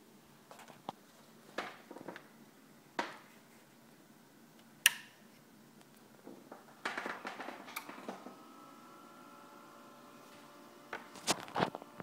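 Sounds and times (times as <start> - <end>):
faint steady whine: 0.0 - 12.0.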